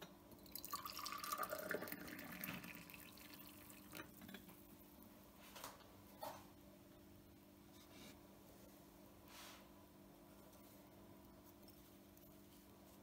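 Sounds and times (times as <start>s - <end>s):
tea pouring into a glass: 0.4s - 4.2s.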